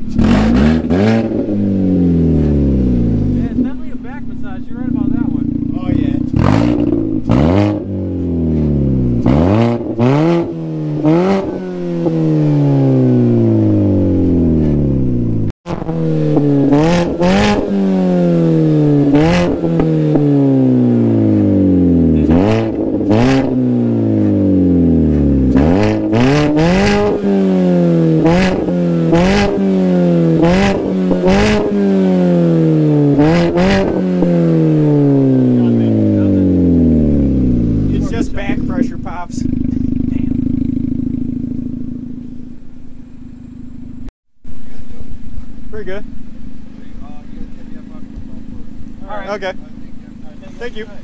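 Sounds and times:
car engine revving: 0:00.0 - 0:51.0
exhaust pops: 0:00.0 - 0:51.0.

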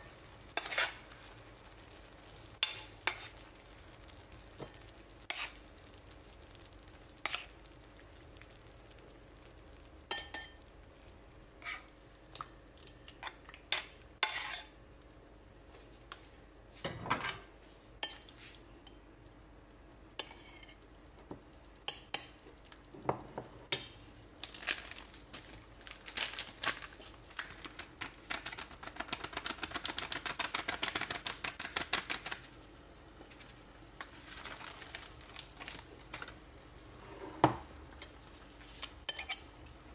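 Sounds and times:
metal utensil clinking on pan: 0:10.1 - 0:10.6, 0:39.1 - 0:39.5.

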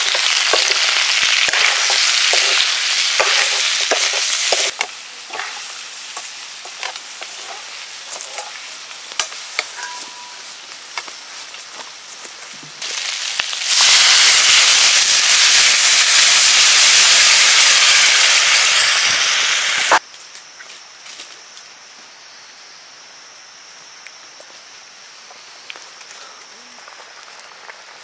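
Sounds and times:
steam hissing from cooking pot: 0:00.0 - 0:09.8, 0:12.8 - 0:20.0.

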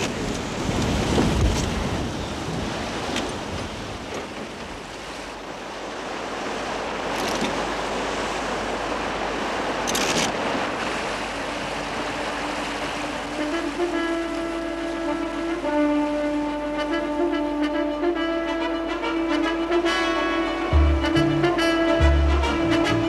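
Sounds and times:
water splashing along hull: 0:00.0 - 0:23.0
wind: 0:00.0 - 0:23.0.

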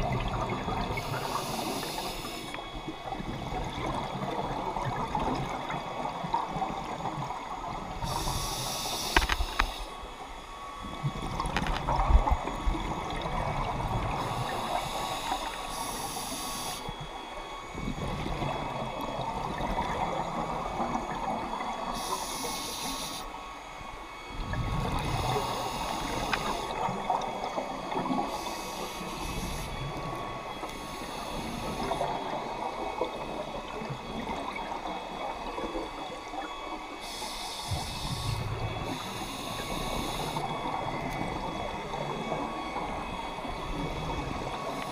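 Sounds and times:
regulator hissing inhalations: 0:01.0 - 0:02.6, 0:08.0 - 0:10.0, 0:14.2 - 0:16.9, 0:21.9 - 0:23.4, 0:25.0 - 0:26.7, 0:28.3 - 0:29.8, 0:37.0 - 0:40.4.

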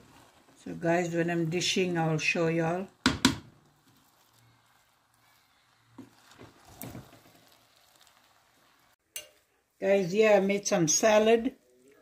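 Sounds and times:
spatula stirring rice in a pot: 0:00.0 - 0:12.0.

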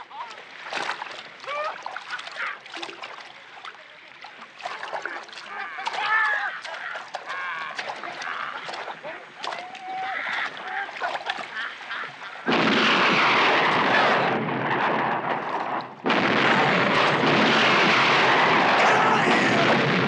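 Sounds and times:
splashing in shallow water: 0:00.0 - 0:14.6
men shouting and whooping: 0:05.5 - 0:08.7, 0:09.5 - 0:11.8, 0:18.3 - 0:19.9.

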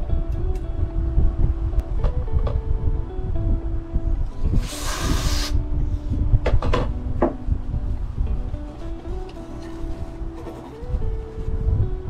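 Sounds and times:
background music: 0:00.0 - 0:12.0
aerosol spray hissing: 0:04.4 - 0:05.6.

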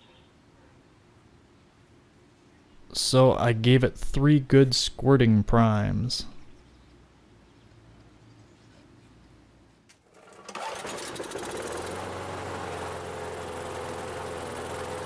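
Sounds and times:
lawn mower pull start: 0:10.0 - 0:15.0
lawn mower engine running: 0:10.1 - 0:15.0.

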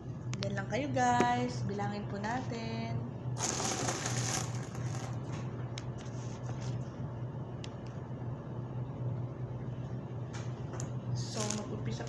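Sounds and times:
steady low hum: 0:00.0 - 0:12.0
coins and bills handled: 0:03.4 - 0:05.2, 0:11.3 - 0:11.7.

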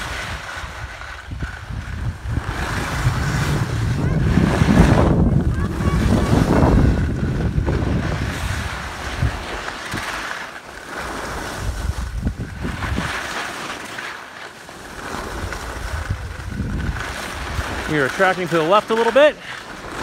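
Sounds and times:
wind buffeting microphone: 0:00.0 - 0:10.2, 0:11.3 - 0:13.3, 0:14.9 - 0:18.6
hiss of sliding on snow: 0:00.0 - 0:20.0.

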